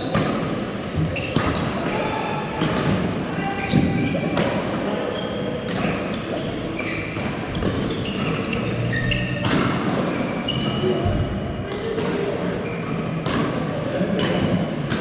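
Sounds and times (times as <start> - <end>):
shoes squeaking on court: 1.0 - 1.8, 5.0 - 10.9
voices across hall: 1.0 - 6.8.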